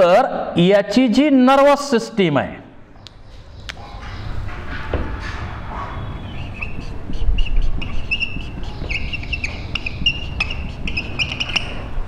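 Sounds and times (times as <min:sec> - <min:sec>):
marker squeaking on whiteboard: 0:03.2 - 0:12.0.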